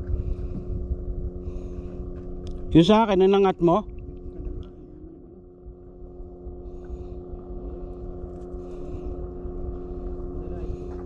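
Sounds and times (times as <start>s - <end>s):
engine running steadily: 0.0s - 11.0s.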